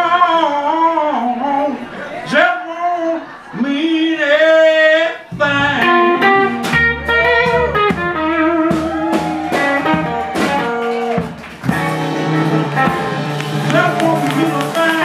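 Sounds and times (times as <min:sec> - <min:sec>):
blues band playing: 0:05.2 - 0:15.0.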